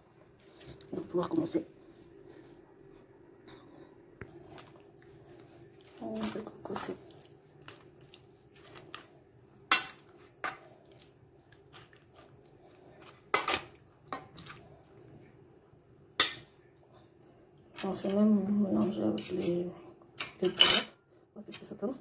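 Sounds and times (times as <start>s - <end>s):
dishes and utensils clinking: 20.3s - 21.0s.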